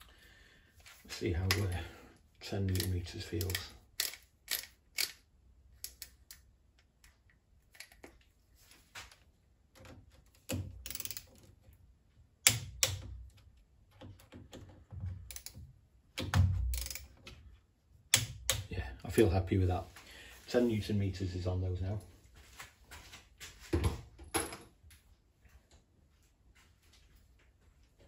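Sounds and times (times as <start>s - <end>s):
rasping ratchet: 2.8s - 5.2s, 10.8s - 11.3s, 16.7s - 17.1s
torque wrench clicks: 2.8s - 5.2s, 10.8s - 11.3s, 15.3s - 15.6s, 16.7s - 17.1s.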